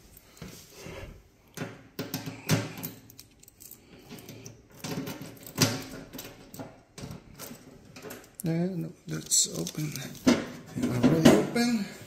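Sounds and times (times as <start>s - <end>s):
keys jingling: 2.8s - 6.6s, 9.2s - 10.2s.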